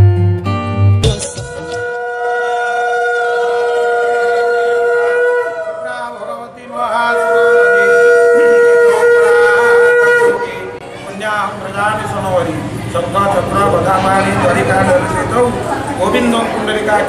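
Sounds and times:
conch shell blown: 1.2 - 5.6, 7.2 - 10.7.

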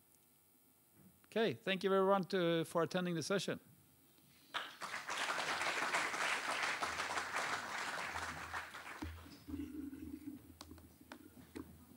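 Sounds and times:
audience applauding: 4.5 - 9.6.

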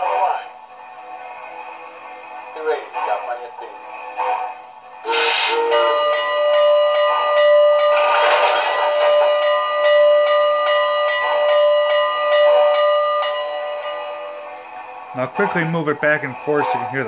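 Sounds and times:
steam hiss: 5.0 - 5.9
steam locomotive bell ringing: 5.0 - 17.0.

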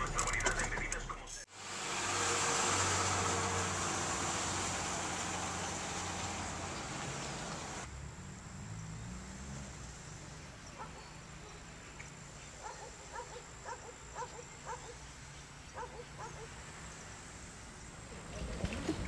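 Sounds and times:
dog barking: 10.7 - 11.6, 12.6 - 15.0, 15.8 - 16.6.

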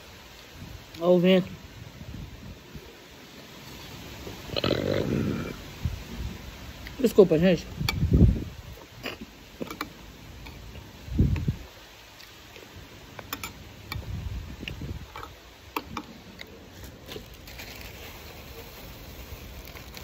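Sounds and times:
low microphone rumbles: 7.7 - 9.2
plastic bag rustling: 16.6 - 20.0.

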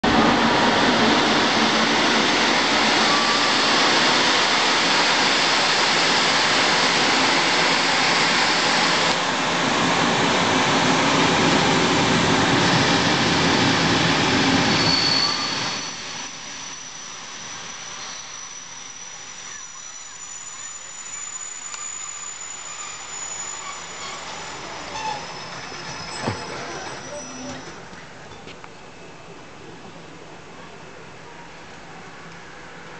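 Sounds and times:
train rumbling on rails: 0.0 - 32.9
high squeal: 1.9 - 9.2, 12.6 - 28.0.

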